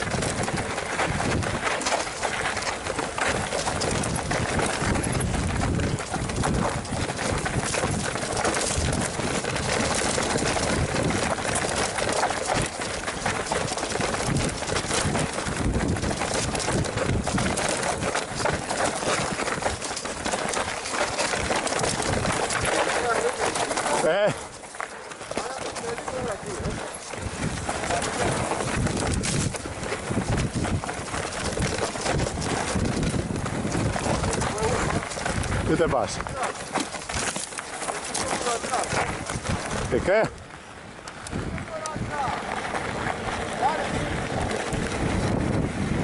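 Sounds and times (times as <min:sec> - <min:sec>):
bike rattling and knocking: 0:00.0 - 0:46.0
tyres over dirt and stones: 0:00.0 - 0:46.0
wind rushing: 0:43.2 - 0:46.0.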